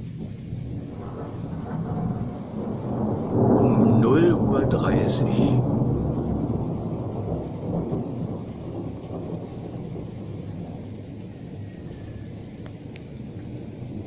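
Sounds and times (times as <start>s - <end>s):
distant rolling thunder: 0.0s - 14.0s.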